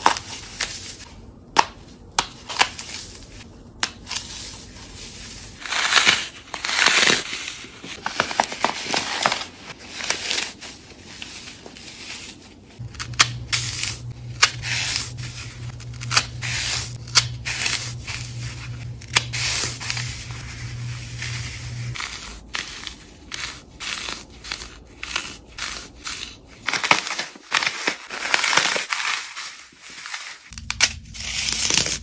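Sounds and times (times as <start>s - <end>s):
foam crunching and snapping: 5.6s - 10.6s, 12.8s - 32.0s
low steady hum: 11.8s - 23.8s.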